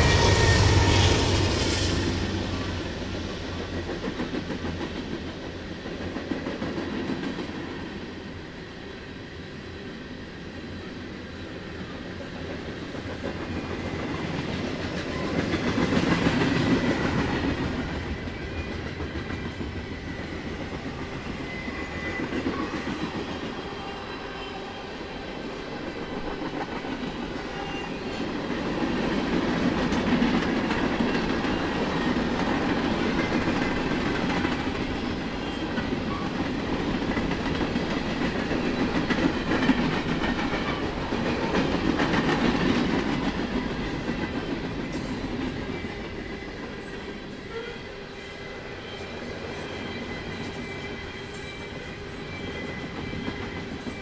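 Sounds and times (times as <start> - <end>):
freight train cars rolling: 0.0 - 7.6.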